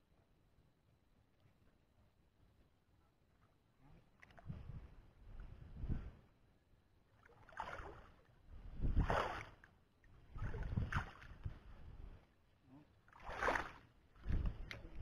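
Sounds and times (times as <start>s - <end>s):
wind buffeting microphone: 4.4s - 6.2s, 8.5s - 9.3s, 10.3s - 12.2s, 14.2s - 15.0s.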